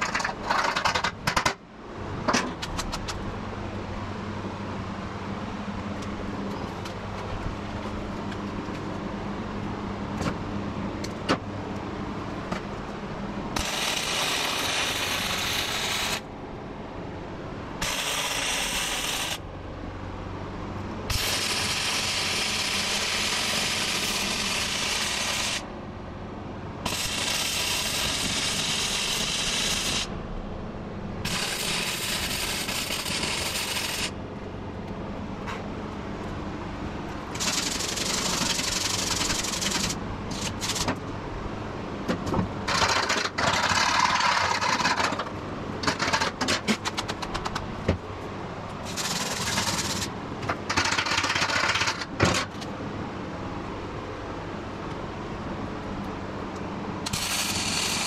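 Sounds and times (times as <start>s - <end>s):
welder arc crackling: 13.5s - 16.3s, 17.8s - 19.4s, 21.1s - 25.7s, 26.8s - 30.1s, 31.2s - 34.2s, 37.3s - 40.9s, 48.8s - 50.1s, 57.0s - 58.0s
wire brush scraping metal: 31.3s - 34.1s, 37.3s - 40.9s, 48.8s - 50.1s, 57.0s - 58.0s.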